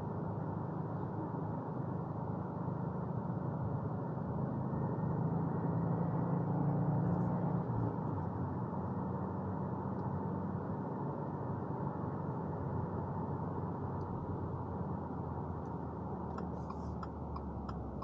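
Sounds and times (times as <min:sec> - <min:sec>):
road and tyre noise: 0:00.0 - 0:18.0
car engine running: 0:13.8 - 0:18.0.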